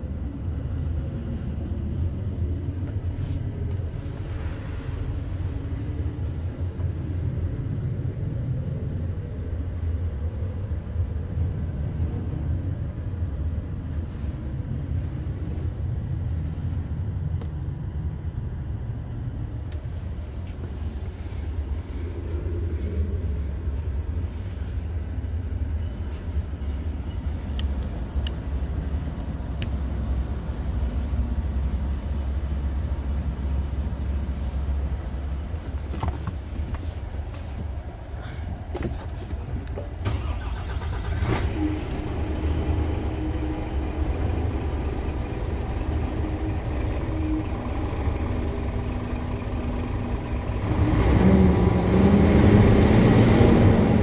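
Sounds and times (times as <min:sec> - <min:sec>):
diesel truck engine idling: 0:00.0 - 0:54.0
engine revving: 0:40.1 - 0:54.0.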